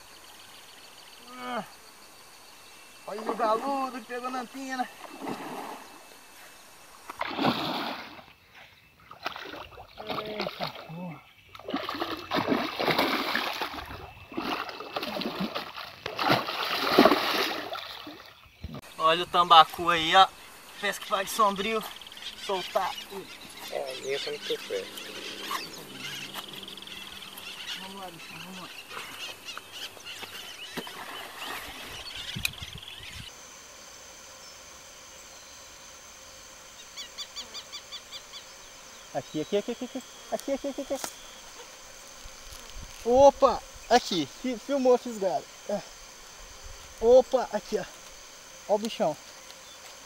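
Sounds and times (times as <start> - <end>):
birds calling: 0.0 - 33.5, 34.3 - 50.0
fish splashing in water: 7.1 - 8.3, 9.1 - 10.9, 11.6 - 18.3
steady high buzz: 11.7 - 50.0
bird chirping quickly: 20.7 - 33.3.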